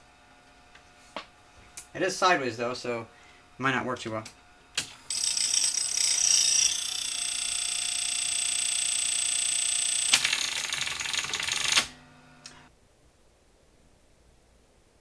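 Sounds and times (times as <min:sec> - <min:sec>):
tape transport whine: 0:04.0 - 0:10.6, 0:11.5 - 0:12.7.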